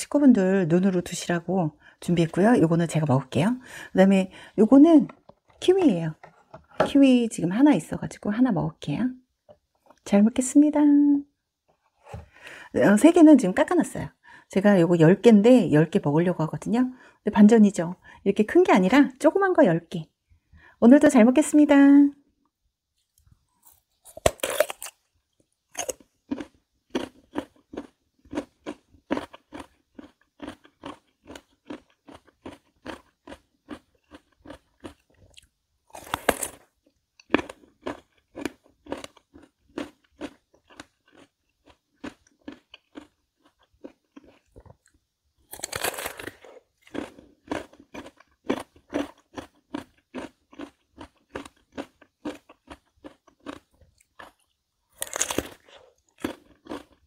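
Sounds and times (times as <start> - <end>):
crunchy bites into melon: 23.6 - 25.0, 35.9 - 36.6, 45.5 - 47.7, 55.0 - 56.8.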